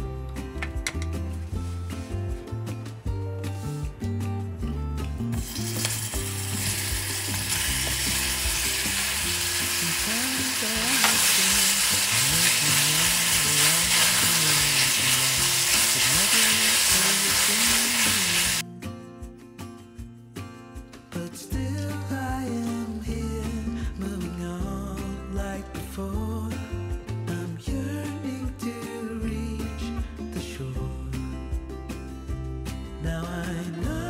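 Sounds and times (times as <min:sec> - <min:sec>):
background music: 0:00.0 - 0:34.0
food sizzling in a pan: 0:05.4 - 0:18.6.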